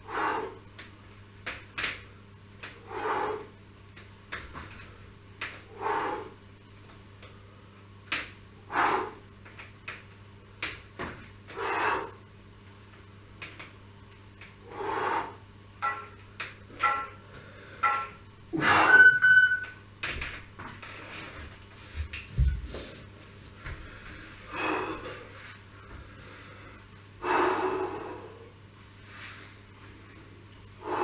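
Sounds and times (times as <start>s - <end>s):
person breathing out hard: 23.7s - 28.6s.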